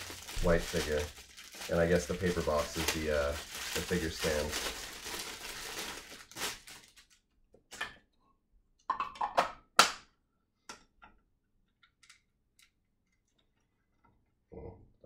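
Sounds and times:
plastic wrapping crinkling: 0.0 - 7.3.

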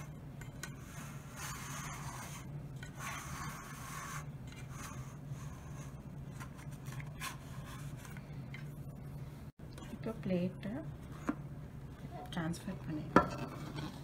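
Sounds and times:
knife scraping metal pan: 0.0 - 6.0.

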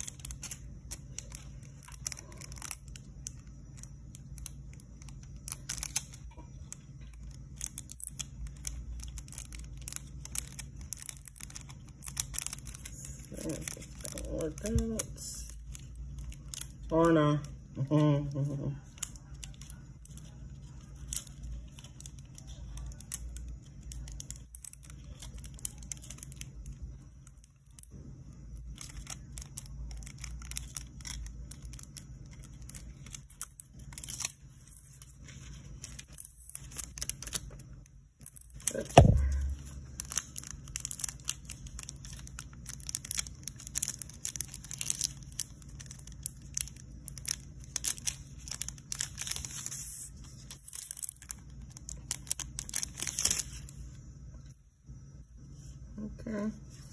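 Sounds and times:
foil crinkling: 0.0 - 54.0
loud thump: 38.9 - 39.6.

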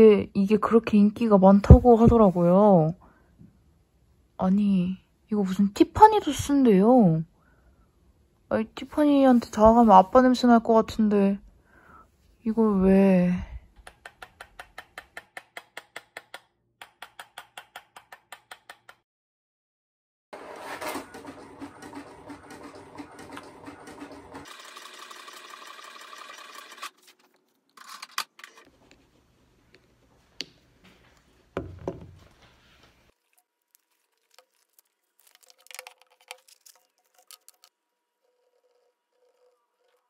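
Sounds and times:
espresso machine buzzing: 23.3 - 26.9.

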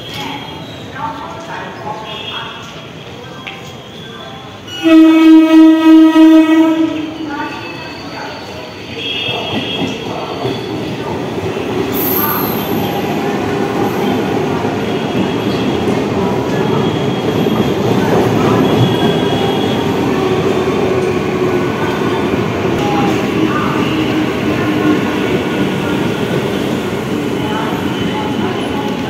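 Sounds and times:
train wheels rumbling on rails: 6.9 - 29.0.

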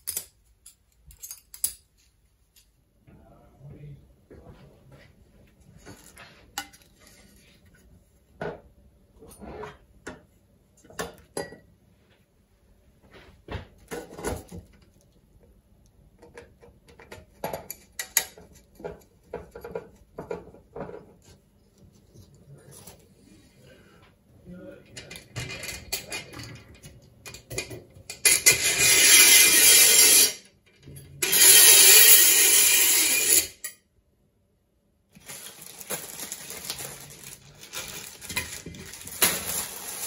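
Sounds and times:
metal parts clinking and knocking: 0.0 - 1.9.

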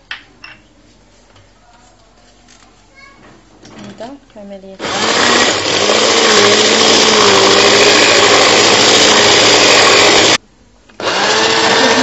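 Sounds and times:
electric hand mixer whisking: 4.8 - 10.4, 11.0 - 12.0.

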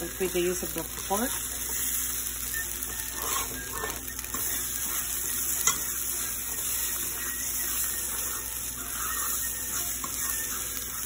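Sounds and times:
eggs sizzling in a pan: 0.0 - 11.0
fork stirring in a pan: 2.9 - 11.0.

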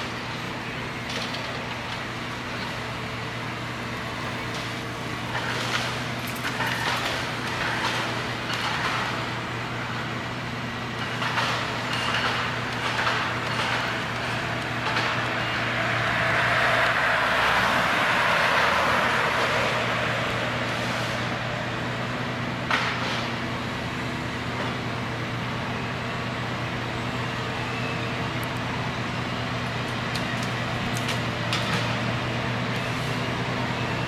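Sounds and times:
diesel engine running: 0.0 - 34.0
rushing noise: 11.1 - 23.2.

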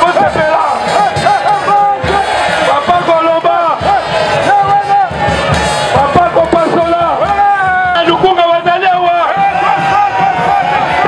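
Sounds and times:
crowd chanting and cheering: 0.0 - 11.0.

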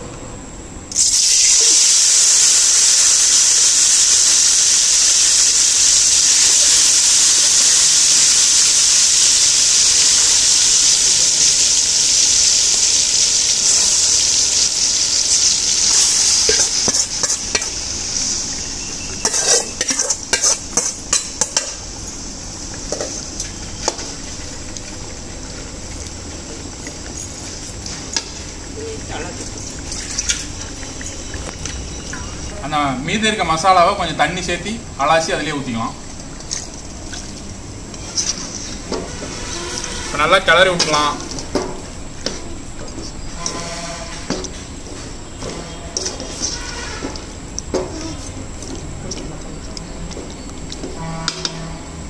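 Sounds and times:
fish frying in hot oil: 0.9 - 32.5
metal ladle scraping pan: 13.6 - 21.6, 45.6 - 47.2.

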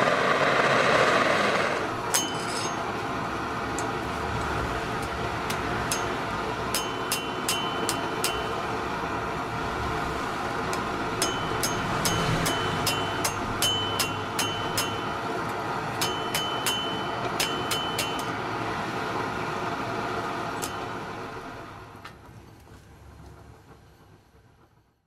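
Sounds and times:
gas forge burner roar: 0.0 - 23.6
hammer ringing on anvil: 2.0 - 3.0, 5.5 - 9.0, 10.7 - 18.5, 20.6 - 21.3.

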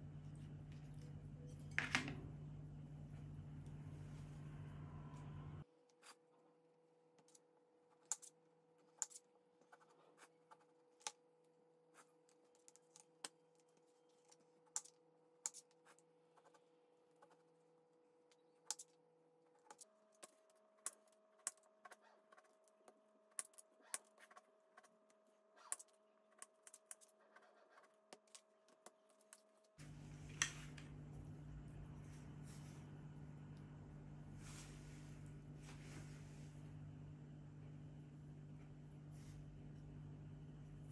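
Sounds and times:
steady hum: 0.0 - 5.7, 29.8 - 40.9.

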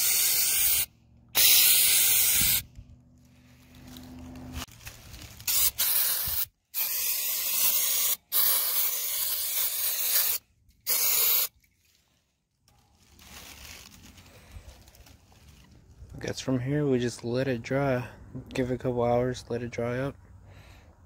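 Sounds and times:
aerosol can spraying: 0.0 - 2.6, 5.4 - 11.5.

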